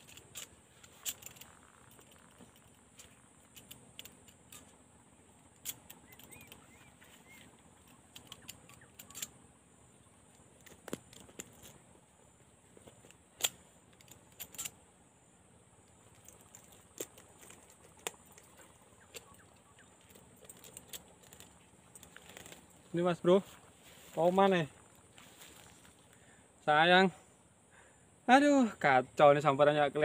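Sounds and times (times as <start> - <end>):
clicks and knocks of gear handling: 0.0 - 4.8, 5.4 - 9.4, 10.3 - 11.8, 12.7 - 14.8, 15.9 - 22.8.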